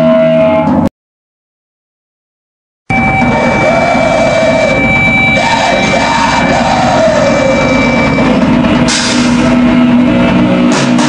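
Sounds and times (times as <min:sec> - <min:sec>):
black metal held notes: 0:02.9 - 0:10.5.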